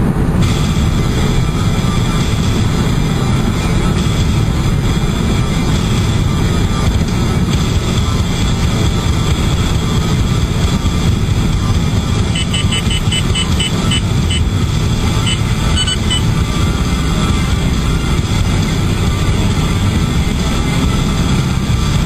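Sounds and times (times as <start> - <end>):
road and engine noise: 0.0 - 22.0
short high beeps: 12.4 - 14.5, 15.2 - 16.2.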